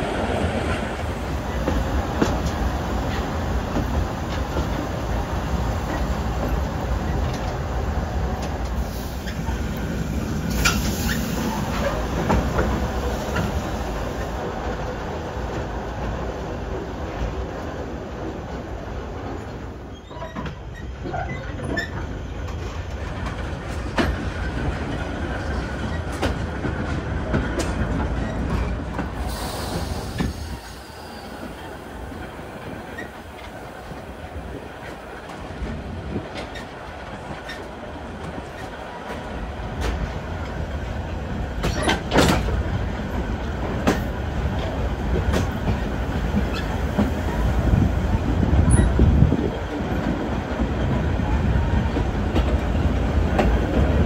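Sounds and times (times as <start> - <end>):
train rumble: 0.0 - 54.0
steam hiss: 8.6 - 14.5, 29.0 - 35.3
wheels clacking over rail joints: 18.6 - 54.0.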